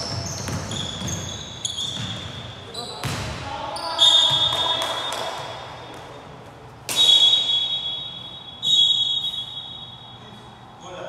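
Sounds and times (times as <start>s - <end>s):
referee's whistle blasts: 3.8s - 5.1s, 6.9s - 10.2s.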